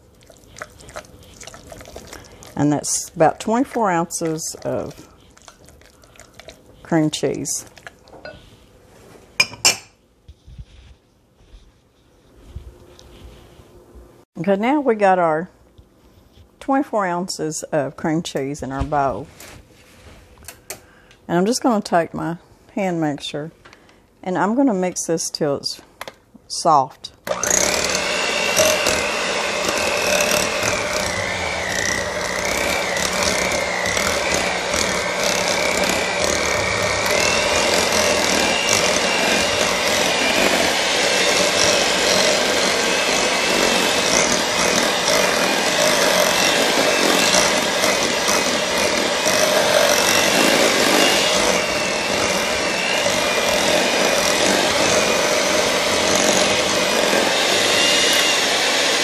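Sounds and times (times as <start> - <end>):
electric hand mixer whine: 27.2 - 59.0.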